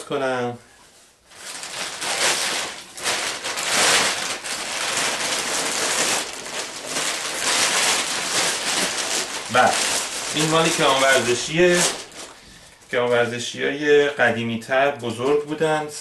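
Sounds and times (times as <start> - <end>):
plastic bag crinkling rustle: 1.2 - 13.8.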